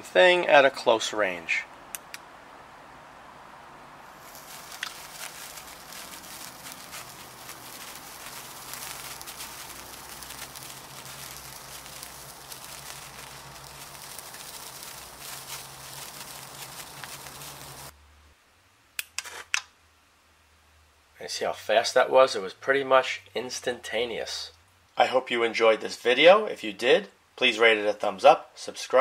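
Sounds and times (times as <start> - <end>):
sparkler fizzing and crackling: 4.1 - 17.9.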